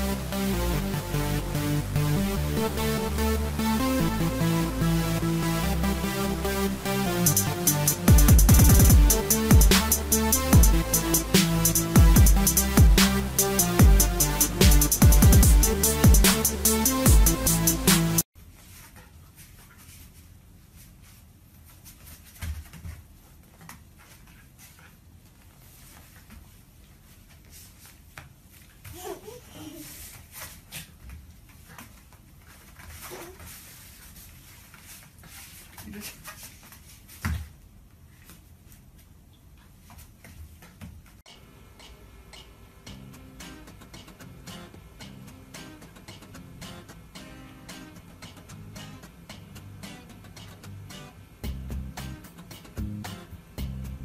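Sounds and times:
light taps and shuffles on mat: 0:18.4 - 0:41.2
soft guitar music: 0:42.9 - 0:54.0.

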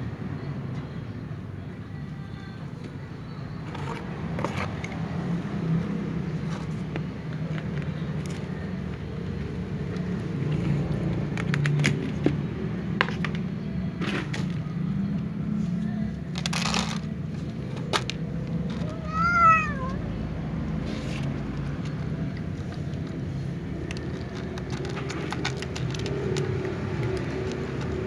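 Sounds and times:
cat meowing: 0:18.8 - 0:20.1
kibble clicking and rustling: 0:21.1 - 0:28.0.

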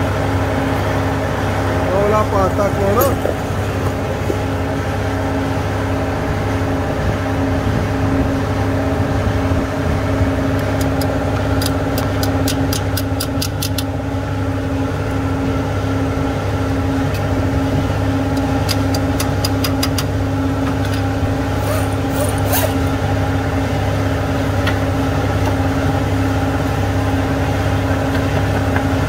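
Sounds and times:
steady machine drone: 0:00.0 - 0:29.0
ratchet wrench clicking: 0:10.8 - 0:13.8, 0:21.6 - 0:22.9.

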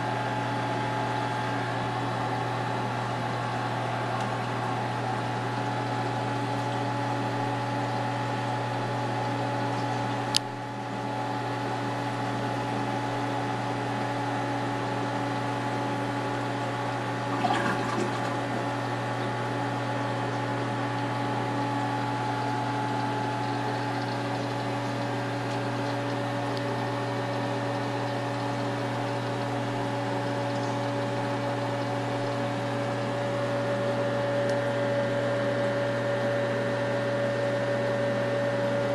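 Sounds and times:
aquarium pumps humming: 0:00.0 - 0:38.9
circulating water running: 0:00.0 - 0:38.9.

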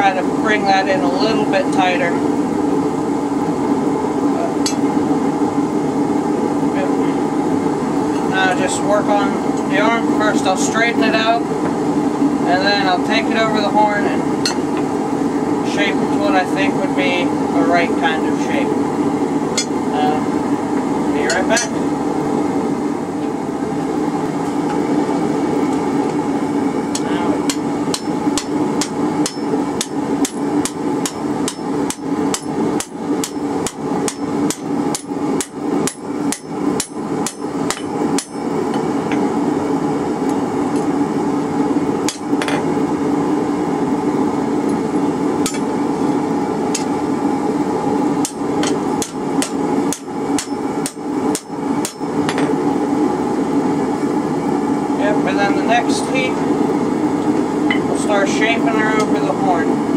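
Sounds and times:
steady low hum: 0:00.0 - 0:59.9
hammer striking metal on anvil: 0:26.9 - 0:38.4, 0:48.2 - 0:52.5.

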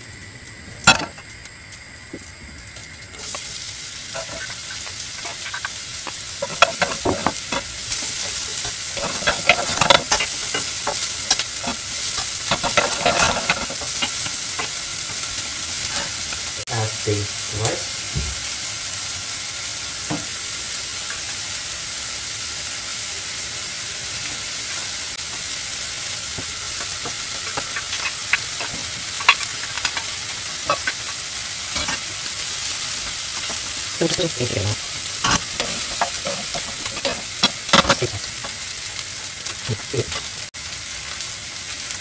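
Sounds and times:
rice sizzling in hot oil: 0:00.0 - 0:42.0
wooden spoon scraping a pan: 0:26.8 - 0:32.2, 0:35.2 - 0:38.3.

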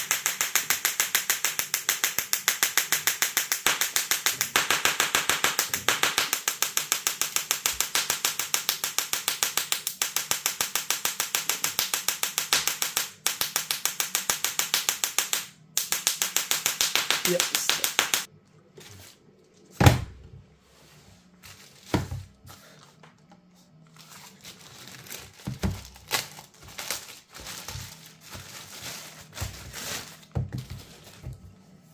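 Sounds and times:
tesla coil crackling buzz: 0:00.0 - 0:18.3.

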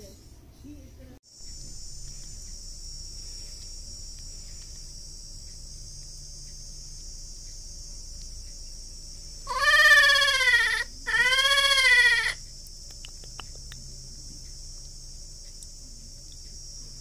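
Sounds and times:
high insect hiss: 0:00.0 - 0:17.0
baby monkey high-pitched calls: 0:09.5 - 0:12.4.

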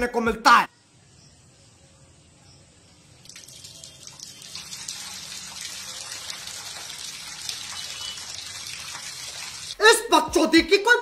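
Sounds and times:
water running and splashing: 0:03.2 - 0:09.8.

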